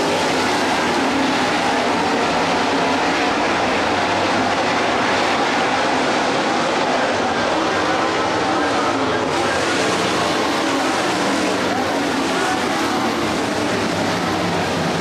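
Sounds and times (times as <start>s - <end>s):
race car engines droning: 0.0s - 15.0s.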